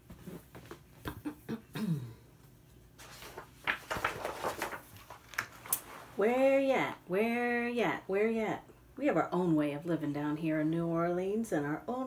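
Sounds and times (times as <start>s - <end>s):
book pages turning: 3.0s - 6.2s.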